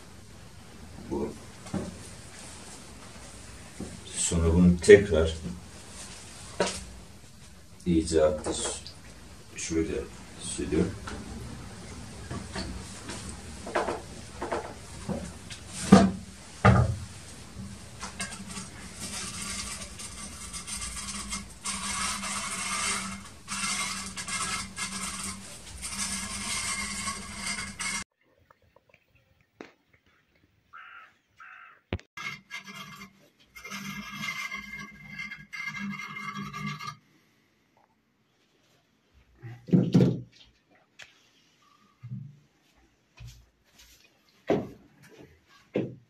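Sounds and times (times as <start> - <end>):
knife scraping metal tray: 18.0 - 28.0, 32.2 - 37.0
crow cawing: 30.7 - 32.0
knife scraping tray edge: 32.2 - 37.0.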